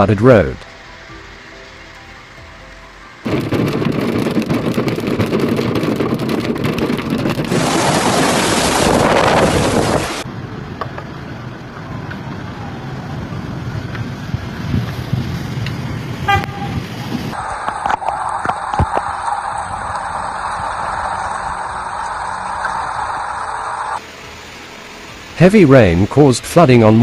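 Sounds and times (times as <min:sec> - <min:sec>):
heavy rain: 0:01.0 - 0:27.0
hailstones drumming on window pane: 0:03.2 - 0:10.2
hail pelting down: 0:03.2 - 0:10.3.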